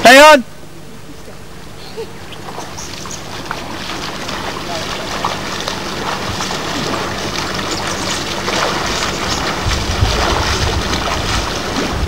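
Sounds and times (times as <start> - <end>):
low buffeting rumble: 0.0 - 12.0
wind hiss on microphone: 9.4 - 12.0.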